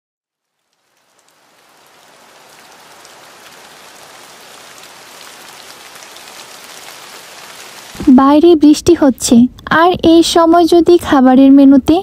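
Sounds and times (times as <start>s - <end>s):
steady rain falling: 0.3s - 12.0s.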